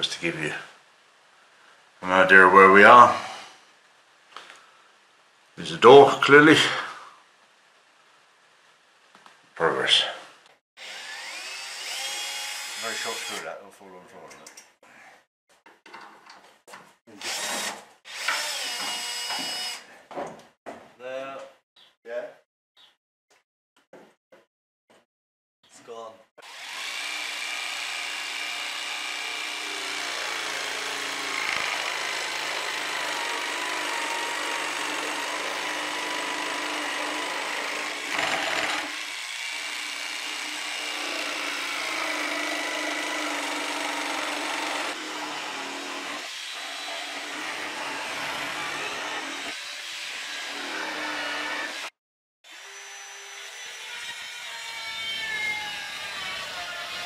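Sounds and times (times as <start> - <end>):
jigsaw cutting wood: 2.9 - 3.6, 10.8 - 13.4, 17.2 - 19.8, 26.4 - 54.0
circular saw whirring: 10.8 - 13.4.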